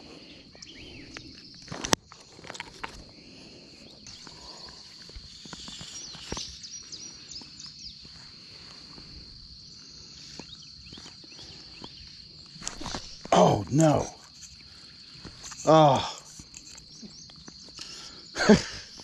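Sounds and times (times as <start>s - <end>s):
high-pitched insect drone: 0.0s - 19.0s
fishing gear clicks and knocks: 12.6s - 17.9s.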